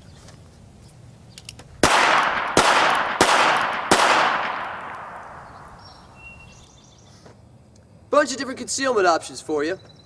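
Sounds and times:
revolver gunshots with echo: 1.8 - 6.0.

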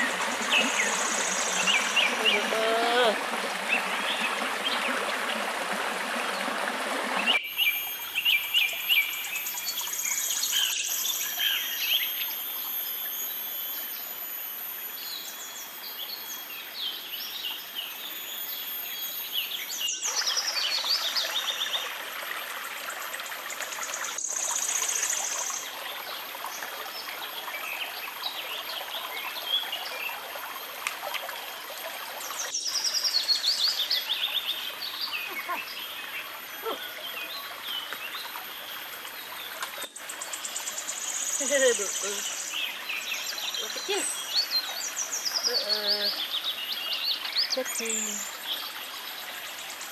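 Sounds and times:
birds chirping and trilling: 0.0 - 5.0, 32.4 - 49.9
water rushing: 0.0 - 10.1, 20.1 - 49.9.

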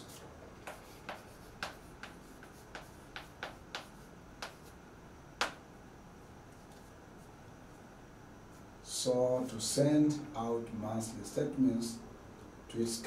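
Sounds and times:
chalk clicking on a blackboard: 0.6 - 4.8, 5.4 - 5.6.

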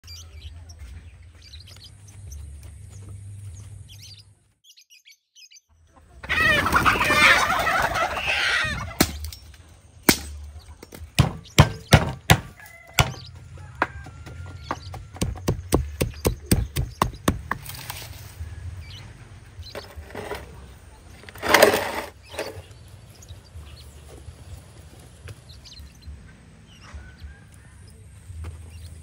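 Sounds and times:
chickens squawking and clucking: 5.9 - 9.3, 12.4 - 15.4, 26.0 - 28.0
knife chopping firewood: 10.0 - 13.2, 14.9 - 18.0
pestle pounding in wooden mortar: 11.2 - 17.7.

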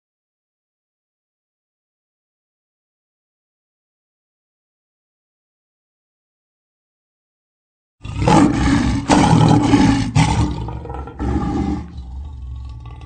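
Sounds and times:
lions roaring: 8.0 - 13.0.

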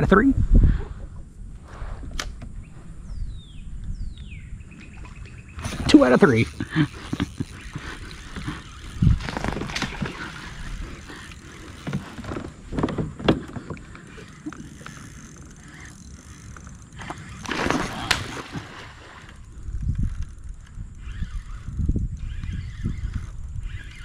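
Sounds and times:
gear clicking and knocking: 5.6 - 18.4.

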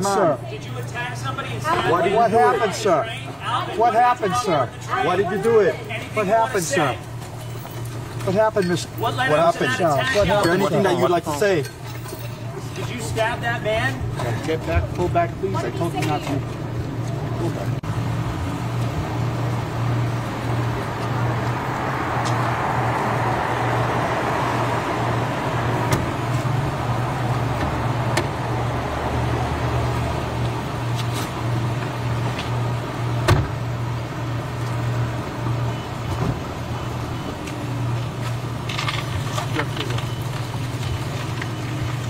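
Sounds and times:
street traffic engine hum: 0.0 - 42.0
vehicle passing: 12.9 - 42.0.

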